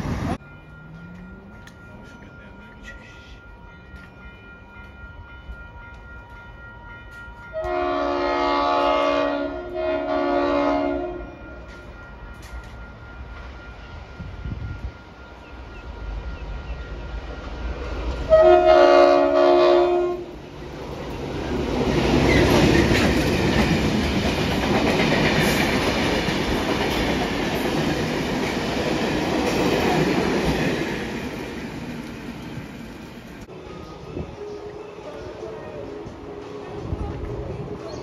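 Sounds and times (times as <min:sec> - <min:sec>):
diesel locomotive engines: 0:00.0 - 0:38.0
locomotive horn chord: 0:07.5 - 0:11.6, 0:18.3 - 0:20.4.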